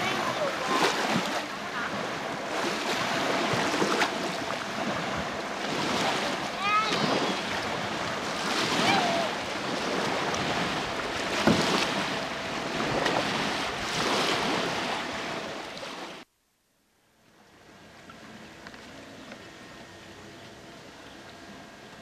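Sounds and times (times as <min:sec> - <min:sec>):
lake water lapping: 0:00.0 - 0:16.3.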